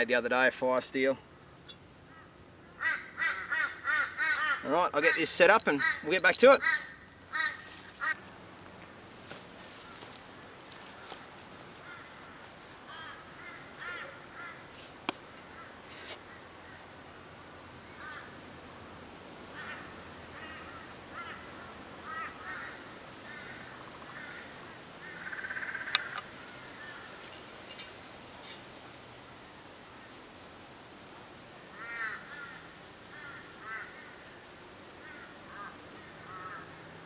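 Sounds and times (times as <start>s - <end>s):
birds cawing: 2.0s - 8.2s, 11.8s - 14.7s, 17.9s - 18.4s, 19.5s - 27.2s, 31.7s - 34.3s, 35.0s - 36.8s.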